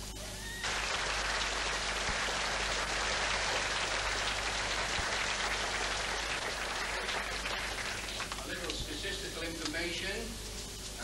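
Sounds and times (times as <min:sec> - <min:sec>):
large audience applauding: 0:00.4 - 0:08.5.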